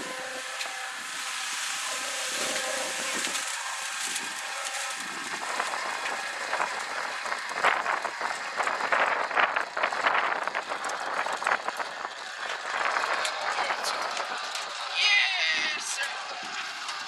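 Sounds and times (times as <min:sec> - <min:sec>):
cement mixer motor hum: 0:00.0 - 0:17.0.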